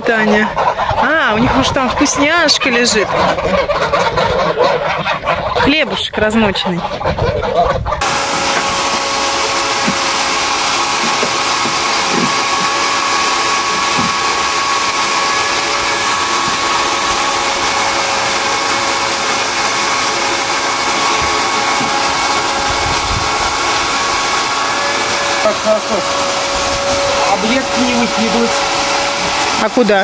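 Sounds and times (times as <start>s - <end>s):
small electric motor whine: 8.0s - 30.0s.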